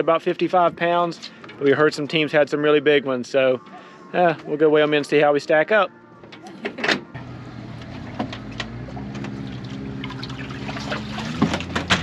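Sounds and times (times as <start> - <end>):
boat motor hum: 7.1 - 12.0
water trickling and splashing: 7.8 - 12.0.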